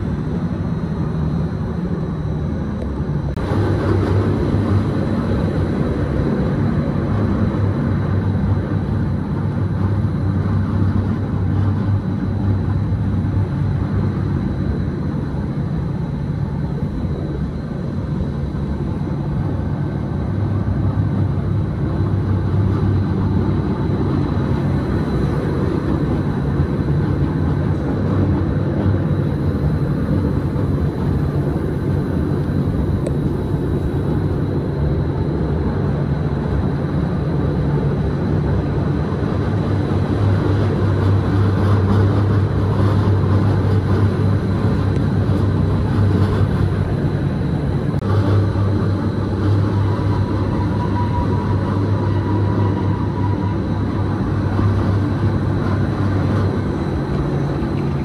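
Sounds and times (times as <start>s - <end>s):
electric train low hum: 0.0s - 58.0s
carriages rumbling: 16.5s - 58.0s.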